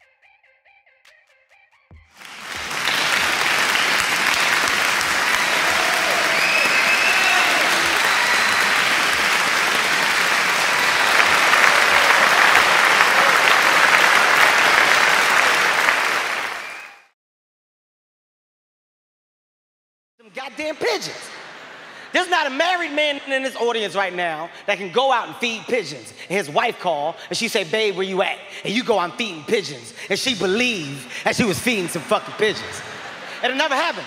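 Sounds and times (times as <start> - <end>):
crowd applause: 2.1 - 17.1, 20.4 - 24.7, 30.2 - 34.0.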